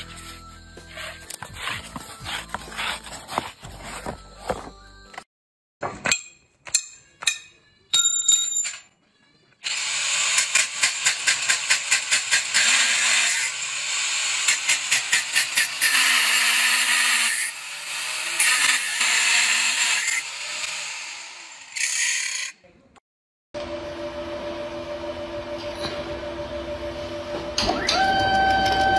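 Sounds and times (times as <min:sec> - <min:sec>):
angle grinder cutting metal: 0:09.7 - 0:22.6.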